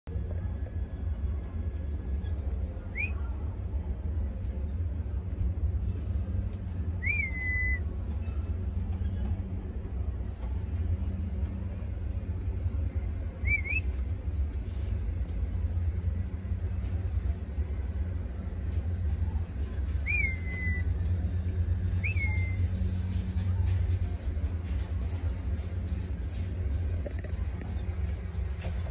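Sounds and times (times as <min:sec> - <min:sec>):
steady low rumble: 0:00.1 - 0:28.9
cockatiel whistling: 0:07.0 - 0:07.8, 0:13.4 - 0:13.9, 0:20.0 - 0:20.8, 0:22.0 - 0:22.6.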